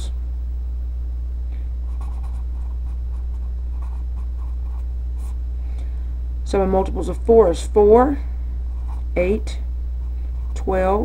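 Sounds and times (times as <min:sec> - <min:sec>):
steady low hum: 0:00.0 - 0:11.0
marker scratching on paper: 0:01.9 - 0:05.4, 0:08.8 - 0:09.2.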